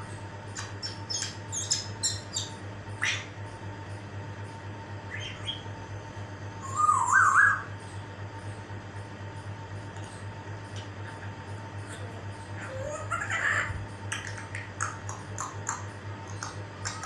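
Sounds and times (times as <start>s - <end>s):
steady low hum: 0.0s - 17.0s
parrot chirping: 0.5s - 3.4s, 5.1s - 5.7s, 6.6s - 7.9s, 11.0s - 17.0s
parrot whistle: 6.6s - 7.7s.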